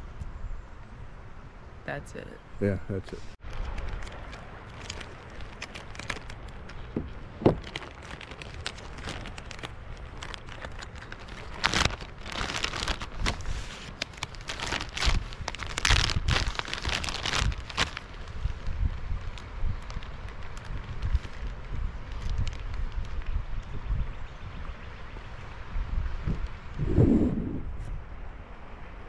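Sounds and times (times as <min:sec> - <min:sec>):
plastic packaging crinkling: 0:03.5 - 0:18.6.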